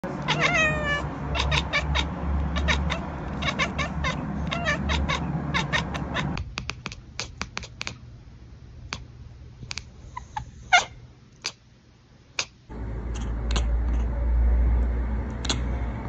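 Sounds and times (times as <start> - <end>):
cat chattering: 0.0 - 8.0, 9.8 - 11.6, 12.4 - 14.2
low rumbling noise: 12.7 - 16.0.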